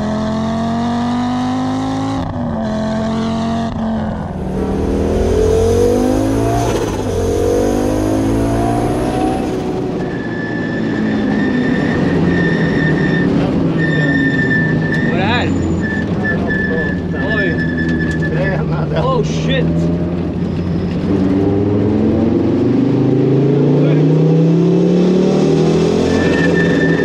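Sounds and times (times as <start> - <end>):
rally car engine revving: 0.0 - 27.0
steady high whine: 4.0 - 9.7.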